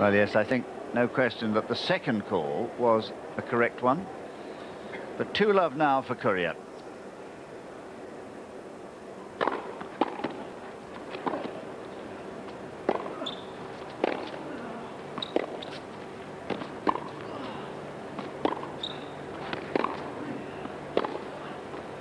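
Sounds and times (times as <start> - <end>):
tennis ball bouncing on court: 9.4 - 10.4, 11.0 - 11.6, 12.8 - 14.4, 15.2 - 15.8, 16.4 - 17.3, 18.2 - 21.8
tennis ball struck by rackets: 9.4 - 10.4, 11.1 - 11.6, 12.8 - 14.4, 15.2 - 15.8, 16.4 - 17.2, 18.2 - 21.3.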